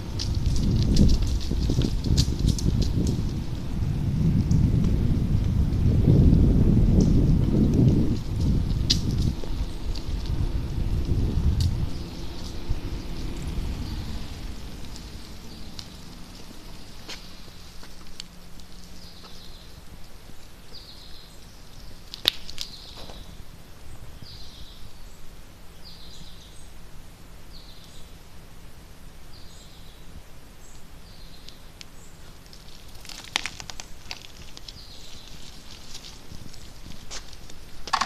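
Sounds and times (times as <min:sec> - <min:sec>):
rustling: 0:07.0 - 0:23.6, 0:31.5 - 0:38.0.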